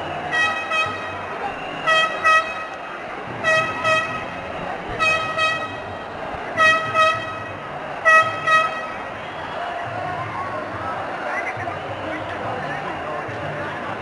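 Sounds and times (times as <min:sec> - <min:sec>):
large crowd noise: 0:00.0 - 0:14.0
car horn tooting: 0:00.2 - 0:09.4.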